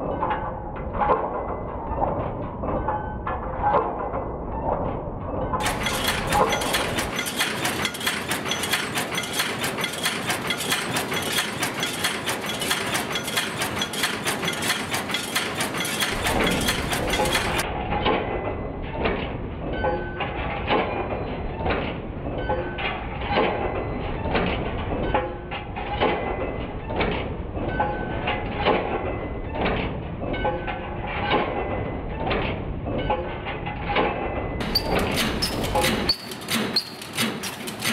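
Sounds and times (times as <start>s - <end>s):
machine clattering metallic knocks: 0.0s - 37.9s.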